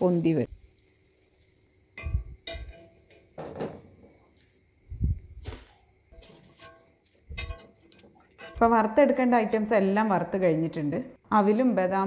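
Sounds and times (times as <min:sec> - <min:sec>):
frying in oil: 0:00.0 - 0:12.0
metal utensils knocking on a pan: 0:02.0 - 0:03.8, 0:06.2 - 0:07.8.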